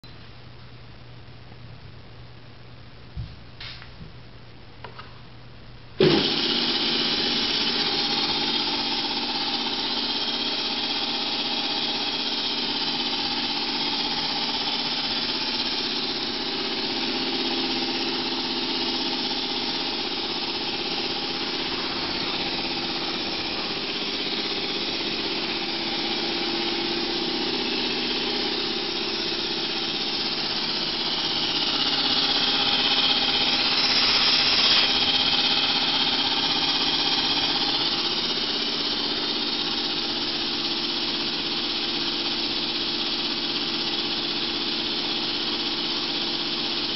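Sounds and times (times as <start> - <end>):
piston air compressor running: 6.0 - 46.9.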